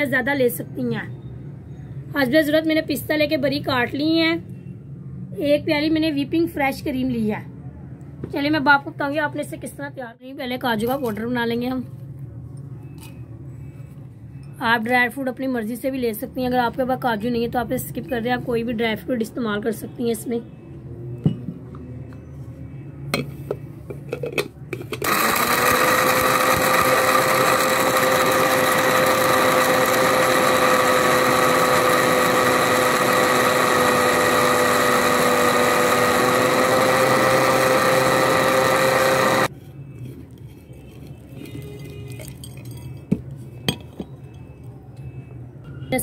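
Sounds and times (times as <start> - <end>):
electric grinder motor running: 25.0 - 39.5.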